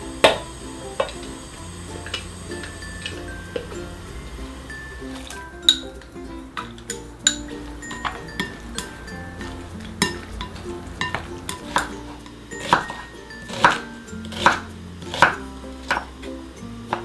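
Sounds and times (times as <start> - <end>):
light background music: 0.0 - 17.0
knife slicing onion on wooden board: 11.1 - 16.2.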